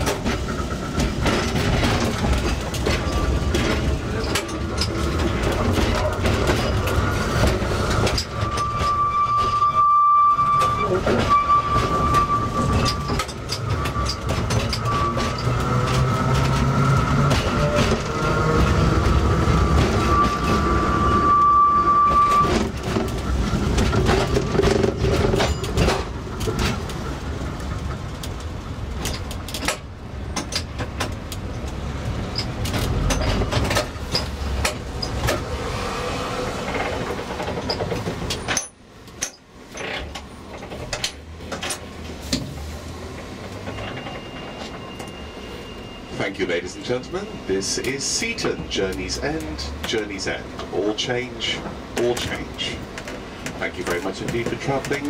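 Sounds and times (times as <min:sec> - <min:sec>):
tram rumbling on rails: 0:00.0 - 0:55.0
high wheel squeal: 0:00.2 - 0:26.0, 0:43.5 - 0:49.7.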